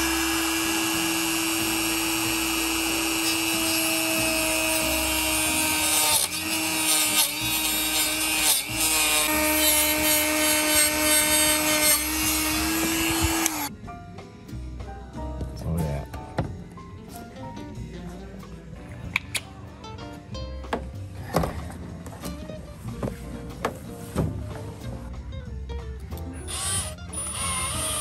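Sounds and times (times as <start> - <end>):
rotary tool whining while drilling: 0.0 - 13.7, 26.5 - 28.0.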